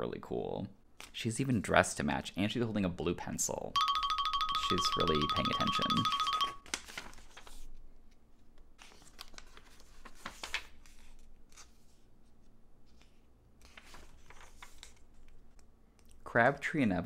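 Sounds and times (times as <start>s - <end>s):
magazine pages turning: 6.6s - 8.2s, 8.8s - 15.7s.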